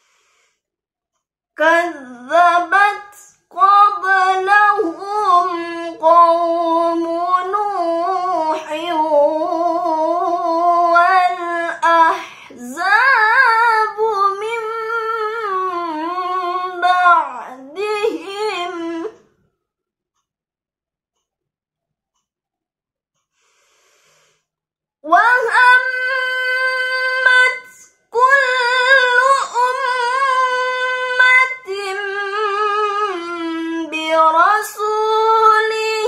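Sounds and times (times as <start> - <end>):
woman reciting melodically: 1.6 - 19.2, 25.0 - 36.0.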